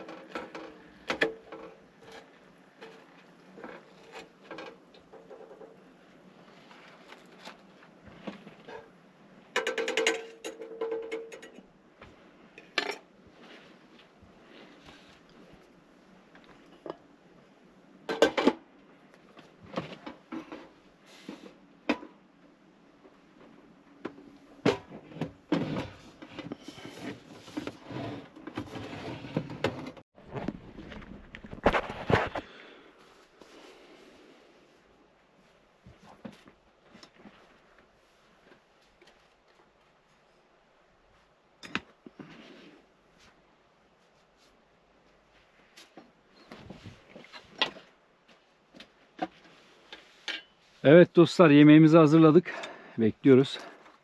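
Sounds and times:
camping stove and pot clattering: 0.0 - 6.0, 8.6 - 11.8, 12.6 - 13.2, 18.0 - 18.7, 48.7 - 50.6.

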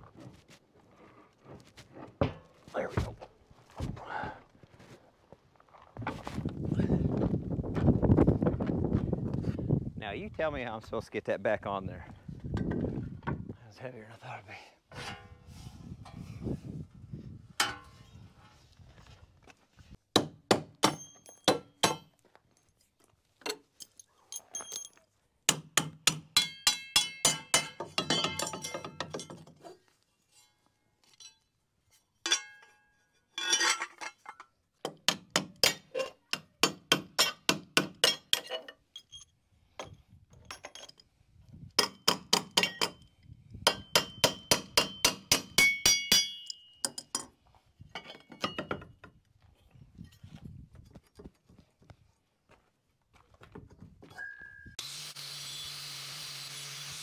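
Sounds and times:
hammer striking metal: 20.2 - 22.1, 25.5 - 29.3, 43.7 - 47.3.

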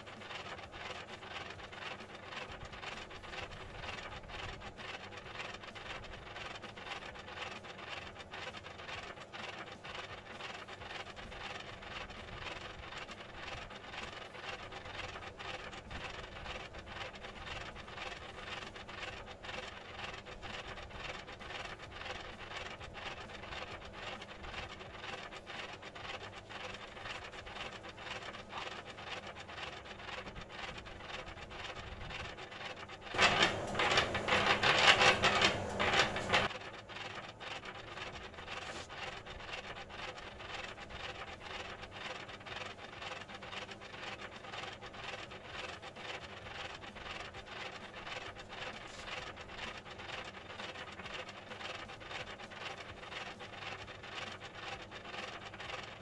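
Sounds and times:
scraping mortar and brick: 0.0 - 56.0.

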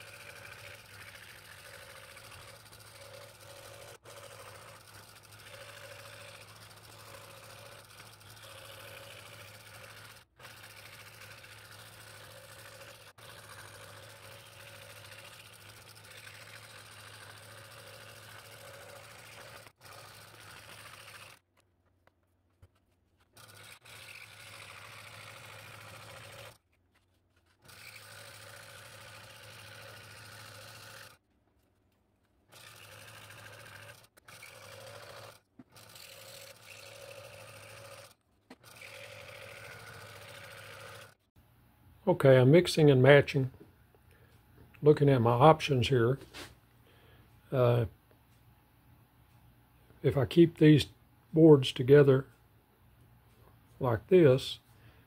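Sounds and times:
scroll saw cutting wood: 0.0 - 21.6, 22.6 - 31.2, 32.4 - 41.3.

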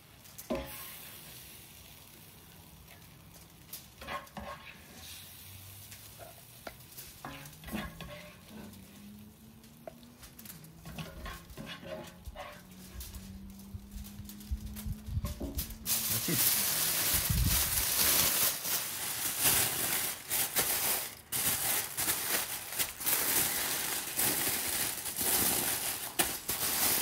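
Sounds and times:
vegetables sizzling: 0.0 - 27.0
spoon tapping and scraping pan: 0.5 - 0.9, 4.0 - 4.9, 6.2 - 8.8, 10.8 - 12.8.

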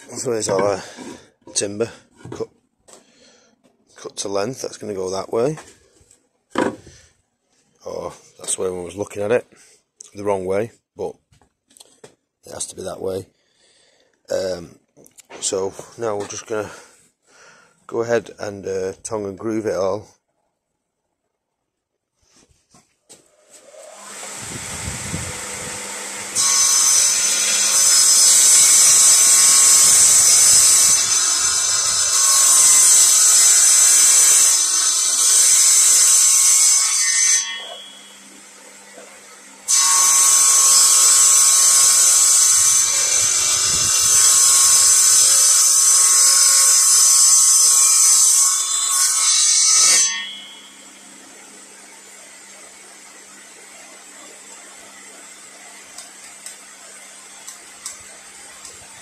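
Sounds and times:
table saw cutting wood: 23.3 - 59.0.

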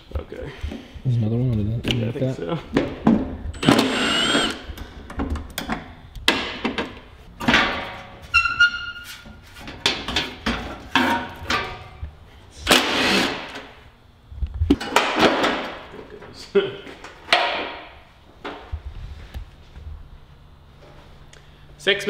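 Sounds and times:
impact driver whirring: 3.6 - 4.8.

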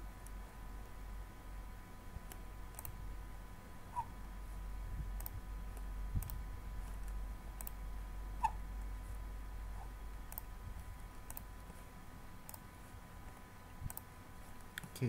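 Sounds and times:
steady low hum: 0.0 - 15.0
computer mouse clicking: 2.3 - 3.0, 5.2 - 7.8, 10.3 - 10.5, 11.1 - 11.8, 12.4 - 12.7, 13.8 - 15.0.

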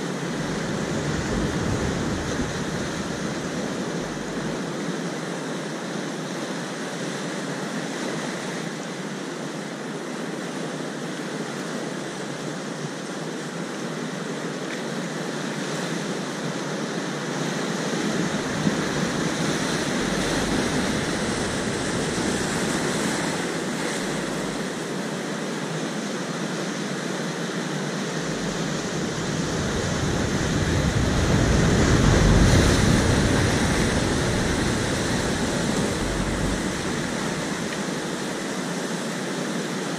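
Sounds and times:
surf breaking on rocks: 17.9 - 25.0, 28.0 - 38.4.

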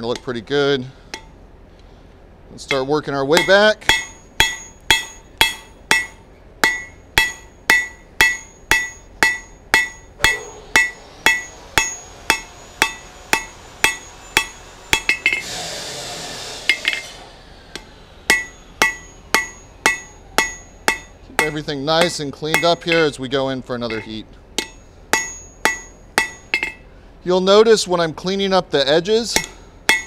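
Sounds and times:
hammer ringing on anvil: 2.7 - 15.4, 17.8 - 23.2, 23.8 - 26.9, 29.3 - 30.0
short scraping hiss: 15.4 - 17.7.

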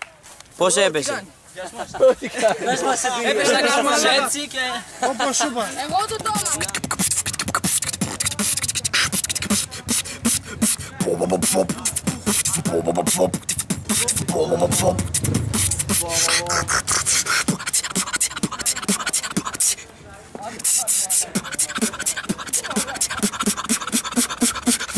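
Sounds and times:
beatboxing: 5.7 - 19.8, 20.4 - 24.9
hummed tones: 10.2 - 18.5.

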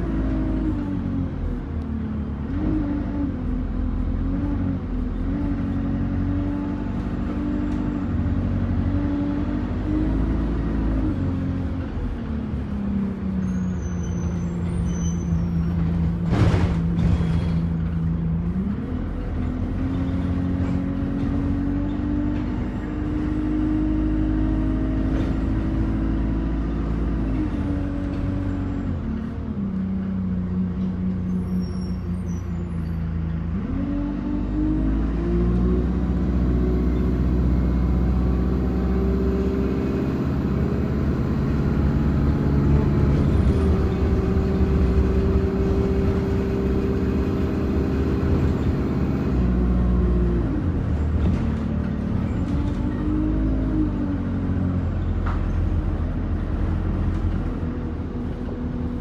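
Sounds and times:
bus engine from inside cabin: 0.0 - 59.0.

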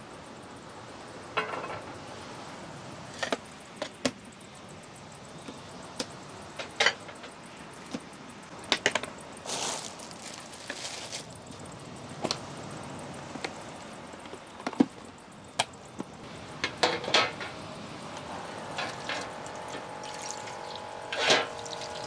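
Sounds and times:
short rustle or scrape: 9.5 - 11.3.

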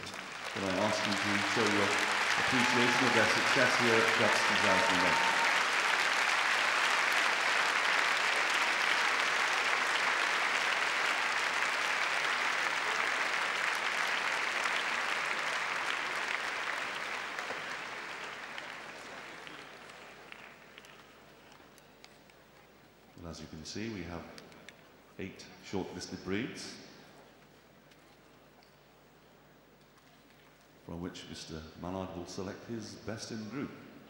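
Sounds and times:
crowd applauding: 0.0 - 21.8.

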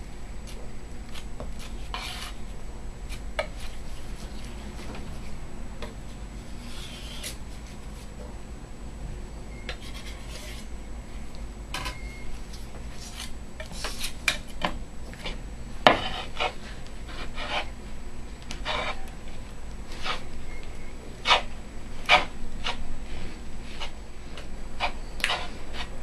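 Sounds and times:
glass muller rubbing paste: 1.6 - 2.4, 9.7 - 10.7, 15.9 - 17.7, 18.6 - 19.1, 19.9 - 20.3, 21.2 - 23.9, 24.8 - 25.9
palette knife scraping on glass: 1.6 - 2.4, 6.6 - 7.4, 9.7 - 10.7, 15.9 - 17.7, 18.6 - 19.1, 19.9 - 20.6, 21.2 - 22.8, 24.8 - 25.9.

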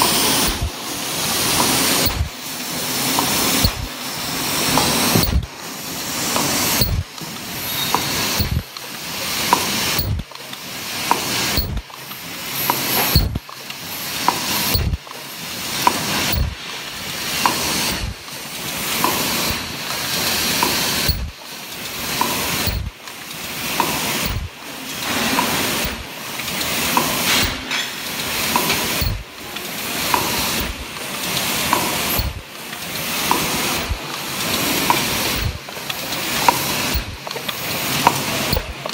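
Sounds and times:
machine air hiss: 0.0 - 38.9
machine light click: 2.0 - 2.3, 3.2 - 3.9, 6.7 - 7.3, 7.9 - 8.9, 9.5 - 11.9, 13.0 - 15.2, 15.8 - 16.5, 20.6 - 21.3, 22.2 - 24.5, 28.2 - 30.8, 34.9 - 38.9.

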